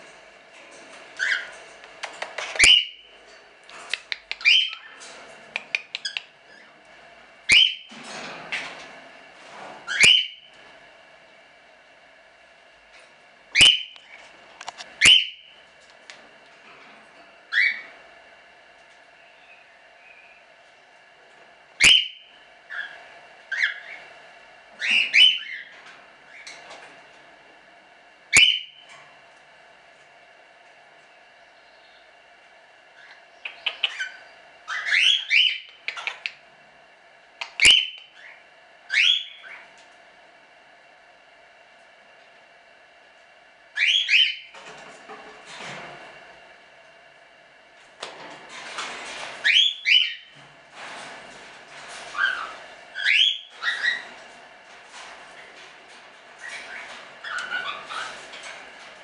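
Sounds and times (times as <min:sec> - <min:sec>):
cockatiels calling shrilly: 0:02.4 - 0:03.0, 0:07.5 - 0:07.9, 0:09.9 - 0:10.4, 0:15.0 - 0:15.5, 0:17.5 - 0:17.9, 0:21.8 - 0:24.0, 0:24.8 - 0:25.7, 0:33.0 - 0:36.2, 0:37.5 - 0:39.6, 0:43.8 - 0:44.5, 0:49.4 - 0:50.3, 0:52.1 - 0:54.1, 0:56.4 - 0:58.2.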